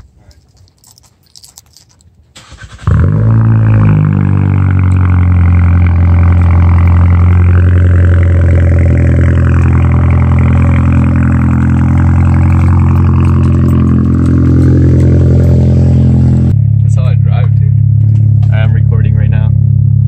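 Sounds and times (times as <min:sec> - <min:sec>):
car exhaust idling: 0:02.8 - 0:20.0.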